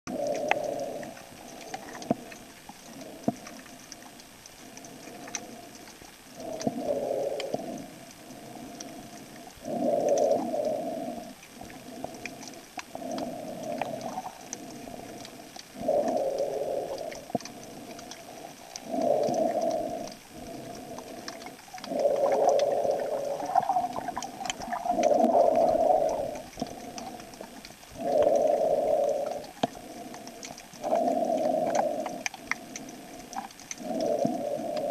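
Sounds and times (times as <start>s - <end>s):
faint crackle of clicks: 0.1s - 34.9s
underwater bubbling: 0.1s - 34.9s.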